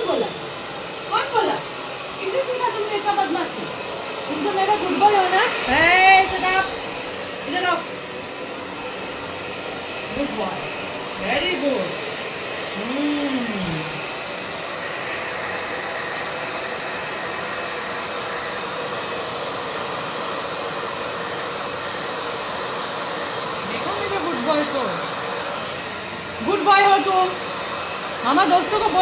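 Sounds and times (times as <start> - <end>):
hair dryer running: 0.0 - 29.0
short vocal sounds: 12.8 - 14.0.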